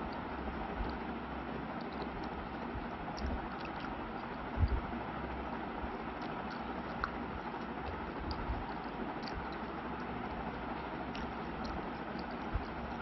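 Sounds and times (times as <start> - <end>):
chewing smacks: 1.8 - 4.9, 6.0 - 13.0.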